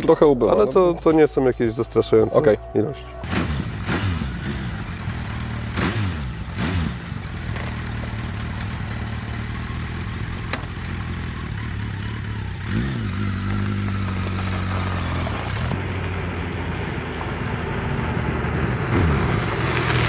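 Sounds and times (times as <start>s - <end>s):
motorcycle engine idling: 0.0s - 16.3s.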